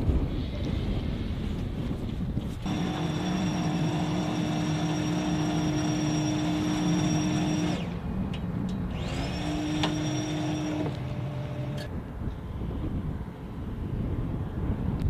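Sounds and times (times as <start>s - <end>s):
jet engine idling whine: 2.6s - 12.0s.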